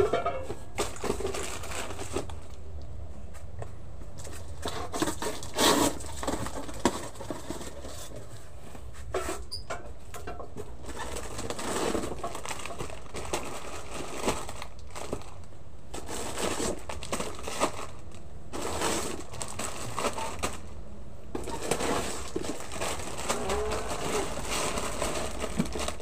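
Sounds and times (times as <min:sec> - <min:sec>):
plastic packets crinkling: 0:00.8 - 0:02.8, 0:10.8 - 0:20.8, 0:21.4 - 0:26.0
pigeon cooing: 0:23.2 - 0:24.7.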